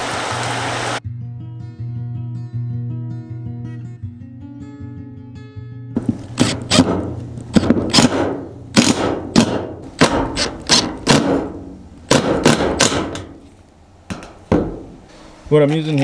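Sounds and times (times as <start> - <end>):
impact driver hammering screws: 6.0 - 13.4.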